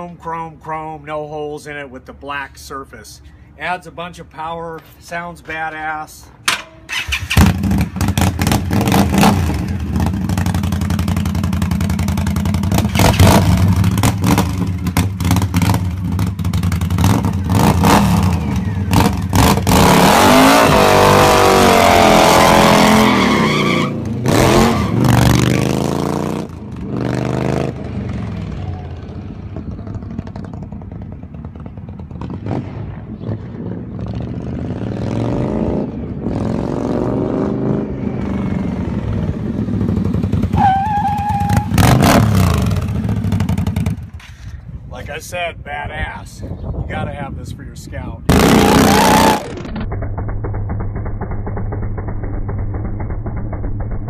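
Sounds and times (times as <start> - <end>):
motorcycle passing: 6.9 - 23.2, 23.8 - 44.5, 48.2 - 54.0
motorcycle engine revving: 6.9 - 44.2, 48.2 - 54.0.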